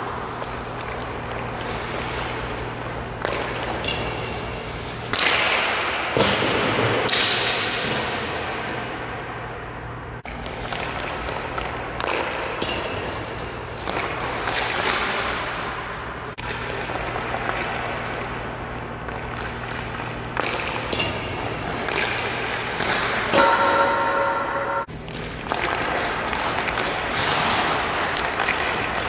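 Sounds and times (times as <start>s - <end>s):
hockey stick striking puck: 0.0s - 8.8s, 10.3s - 29.0s
puck hitting boards: 3.1s - 4.2s, 5.1s - 8.2s, 10.3s - 15.4s.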